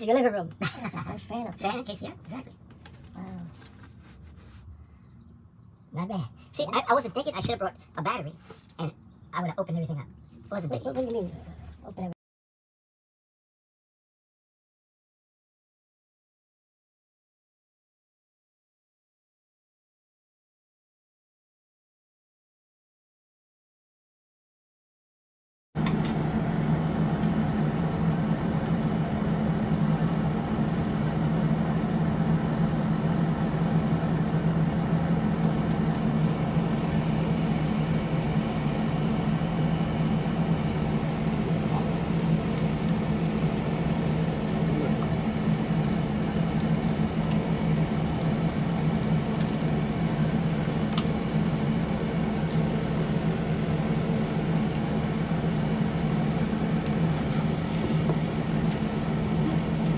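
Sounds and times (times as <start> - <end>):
constant low hum: 0.0 - 12.2, 25.8 - 59.9
fish sizzling in frying pan: 25.9 - 59.9.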